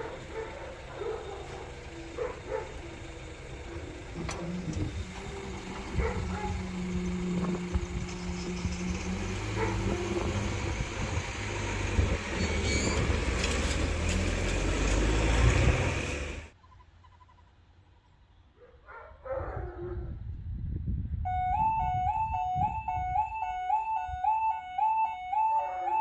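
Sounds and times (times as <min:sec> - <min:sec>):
crossing barriers rising: 0:00.0 - 0:16.6
faint passing vehicle: 0:00.0 - 0:16.6
road vehicle noise: 0:00.0 - 0:26.0.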